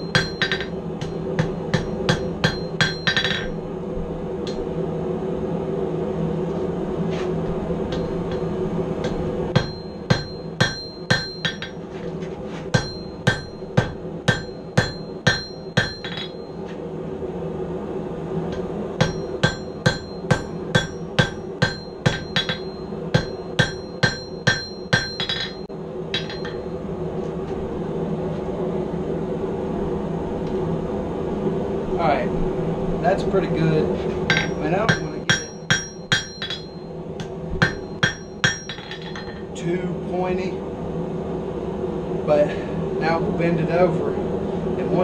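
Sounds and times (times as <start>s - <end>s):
hammer blows on anvil: 0.0s - 3.6s, 7.9s - 11.9s, 12.6s - 16.6s, 18.5s - 26.8s, 34.2s - 39.6s
steady hum: 0.0s - 45.0s.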